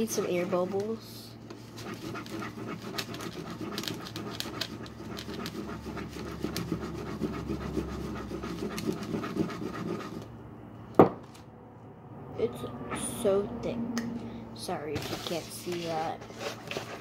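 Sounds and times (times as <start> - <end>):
spoon stirring wet slime: 0.0 - 10.3.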